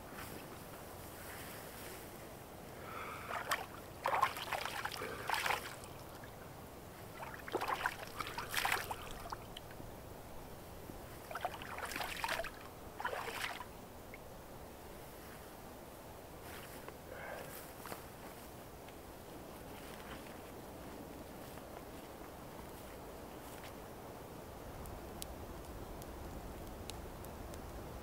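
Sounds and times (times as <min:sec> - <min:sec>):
water splashed onto face: 0:03.3 - 0:06.3, 0:07.1 - 0:09.7, 0:11.2 - 0:13.7
water dripping and trickling: 0:03.3 - 0:09.8, 0:11.1 - 0:14.3.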